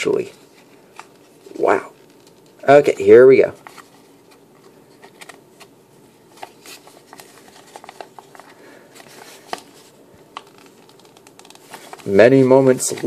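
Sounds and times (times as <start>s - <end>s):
paper rustling: 3.4s - 5.7s, 6.3s - 13.0s.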